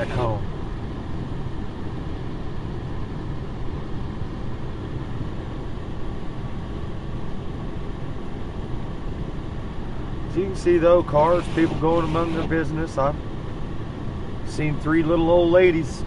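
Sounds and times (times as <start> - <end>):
vehicle running rumble: 0.0 - 0.8.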